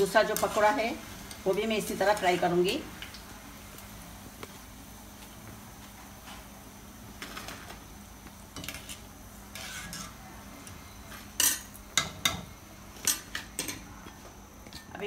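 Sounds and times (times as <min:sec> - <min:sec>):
oil sizzling: 0:00.0 - 0:15.0
wire skimmer scraping metal pan: 0:09.5 - 0:10.2.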